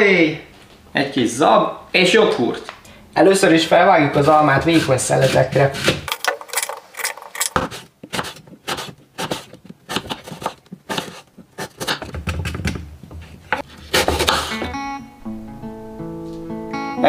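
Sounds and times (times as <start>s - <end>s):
knife slicing on cutting board: 4.2s - 6.1s, 7.6s - 12.0s, 13.5s - 14.7s.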